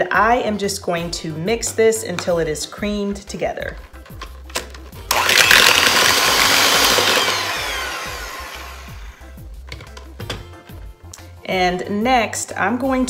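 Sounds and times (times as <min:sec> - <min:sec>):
electric hand mixer running: 0:05.1 - 0:09.4.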